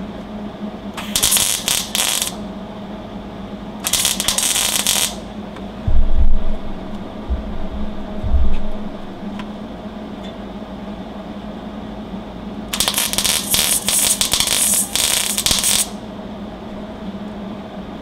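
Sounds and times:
steady low hum: 0.0s - 18.0s
welder arc crackling and sputtering: 1.0s - 2.4s, 3.8s - 5.3s, 12.7s - 16.0s.

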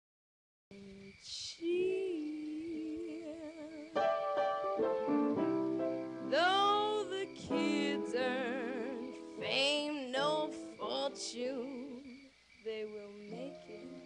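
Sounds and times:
held accompaniment chords: 4.0s - 9.5s
voice singing with vibrato: 6.3s - 14.0s.

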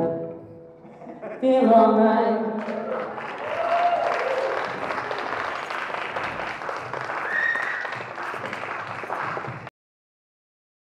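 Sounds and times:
audience applauding: 2.6s - 9.7s
high-pitched cry from crowd: 7.2s - 8.0s.

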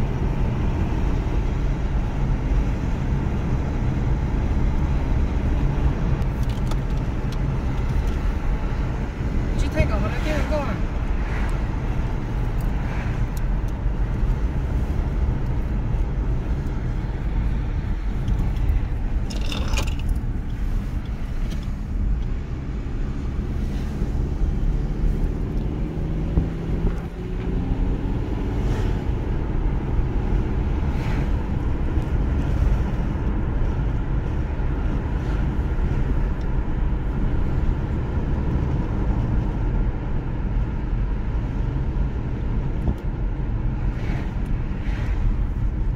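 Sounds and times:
car cabin road noise: 0.0s - 45.9s.

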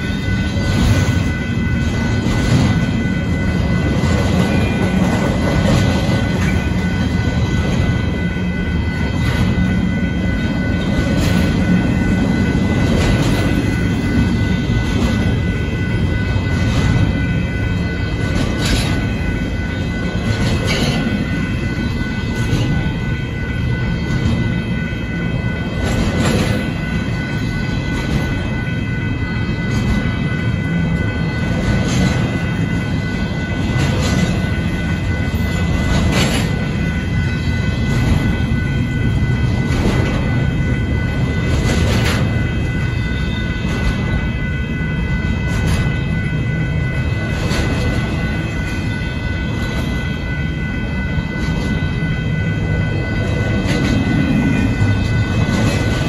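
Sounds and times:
crossing bell ringing: 0.0s - 56.0s
train wheels rumbling on rails: 0.0s - 56.0s.

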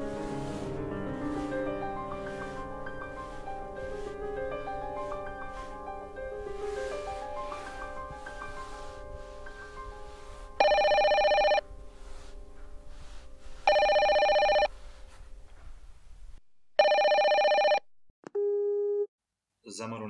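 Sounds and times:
soft music: 0.0s - 16.0s
telephone ringing: 10.6s - 11.6s, 13.7s - 14.7s, 16.8s - 17.9s.

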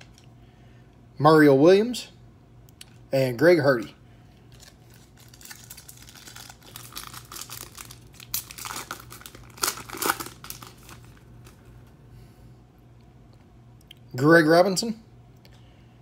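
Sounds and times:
foil wrapper tearing and crinkling: 4.5s - 11.6s.

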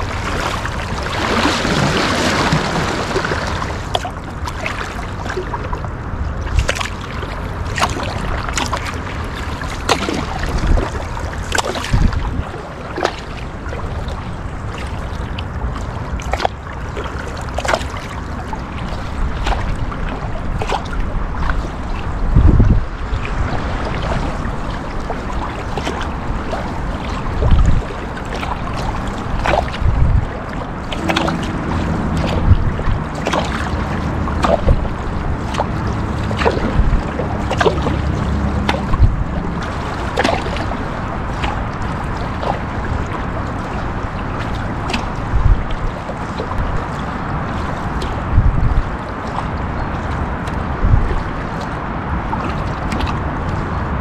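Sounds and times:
moving water: 0.0s - 54.0s
paddle blades splashing: 0.0s - 54.0s
wind thumps on microphone: 9.9s - 12.6s, 19.3s - 24.6s, 27.3s - 28.0s, 29.2s - 40.8s, 44.8s - 46.9s, 48.0s - 49.2s, 49.8s - 51.5s.

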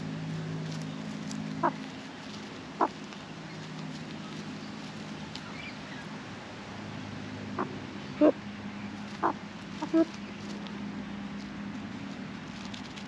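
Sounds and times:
low steady hum: 0.0s - 13.0s
magpie clucking calls: 1.6s - 1.9s, 2.8s - 3.0s, 9.1s - 10.2s.

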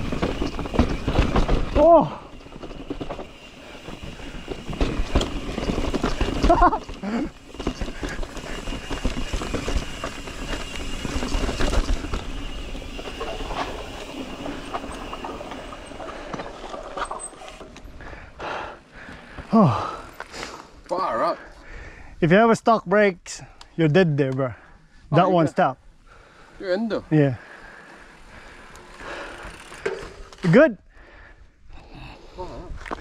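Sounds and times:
chain and suspension clattering: 0.0s - 18.1s
bike tyres rolling over rock: 0.0s - 20.8s, 27.3s - 30.6s.

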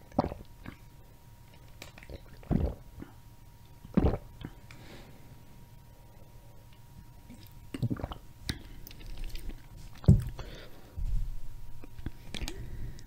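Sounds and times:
gulps and swallows: 1.5s - 3.2s, 3.8s - 4.7s, 7.2s - 10.4s.

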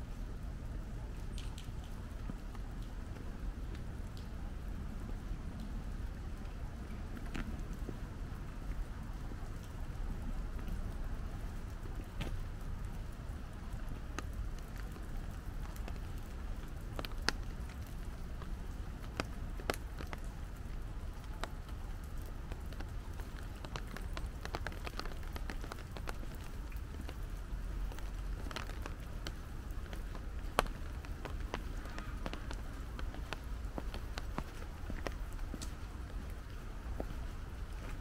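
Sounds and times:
rain falling: 0.0s - 38.0s.

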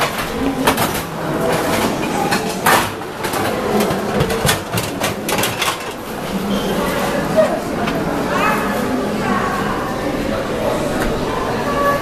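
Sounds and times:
metal food trays clattering: 0.0s - 8.9s.

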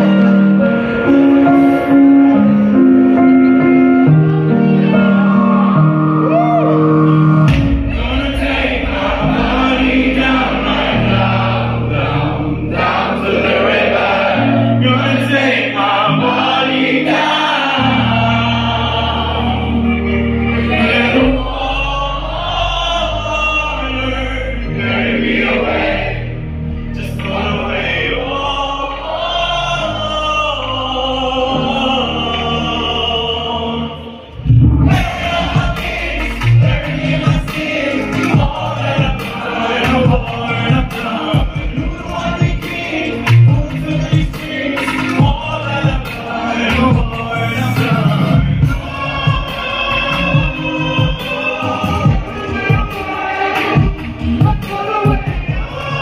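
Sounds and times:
keyboard chords: 0.0s - 56.0s
man singing: 14.4s - 25.1s, 27.0s - 56.0s
live pop ballad through pa: 27.0s - 56.0s.

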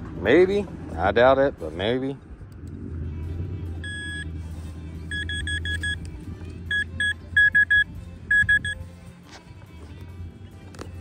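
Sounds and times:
metal detector beeping: 3.8s - 4.3s, 5.1s - 6.1s, 6.7s - 8.8s.

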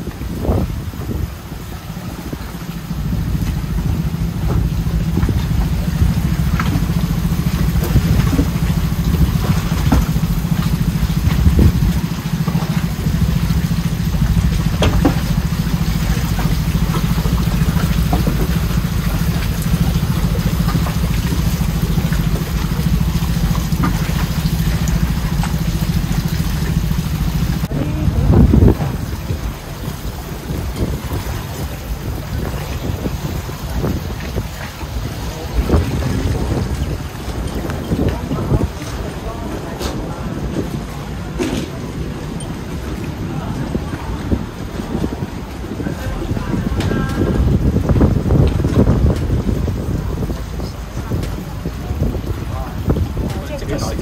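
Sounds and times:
boat engine running: 0.0s - 54.0s
knocks and clicks: 3.4s - 27.7s.

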